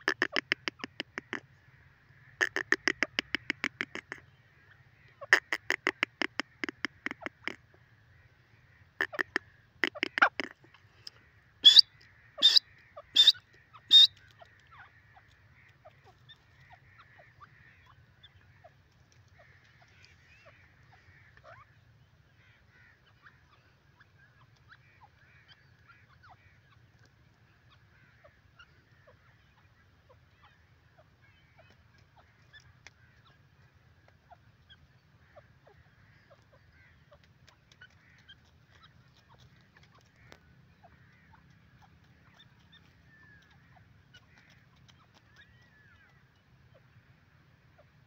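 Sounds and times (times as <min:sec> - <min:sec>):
francolin harsh calls: 0:00.0 - 0:10.6, 0:11.3 - 0:15.7
faint bird chirps: 0:00.0 - 0:18.8.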